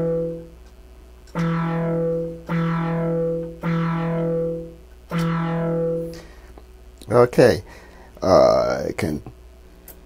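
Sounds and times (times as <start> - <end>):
synthesizer note: 0.0 - 0.5, 1.3 - 6.3.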